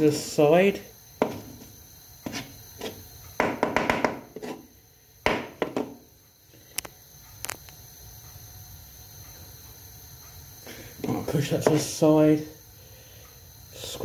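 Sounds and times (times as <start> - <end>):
knife knocking on chopping board: 1.2 - 1.5, 3.4 - 4.3.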